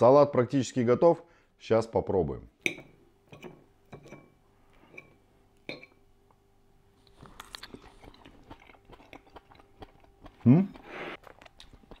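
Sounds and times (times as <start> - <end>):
soft chewing: 7.0 - 12.0.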